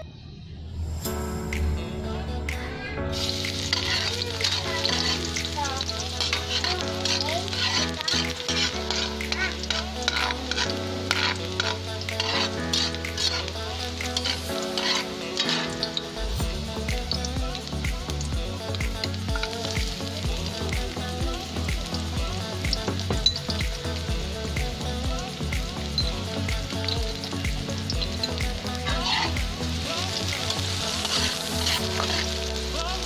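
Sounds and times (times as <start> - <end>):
background music: 0.0 - 33.0
metal spatula scraping wok: 3.2 - 15.9, 28.8 - 29.4, 30.1 - 32.4
garlic sizzling in oil: 3.2 - 33.0.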